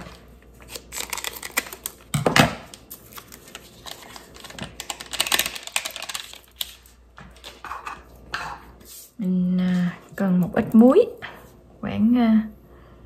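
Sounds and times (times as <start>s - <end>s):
packet crackling and rustling: 0.0s - 7.6s.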